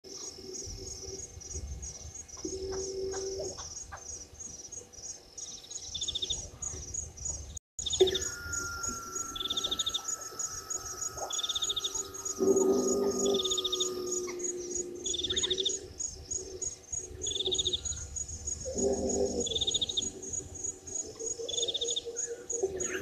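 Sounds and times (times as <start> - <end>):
bird trills: 5.4 - 23.0.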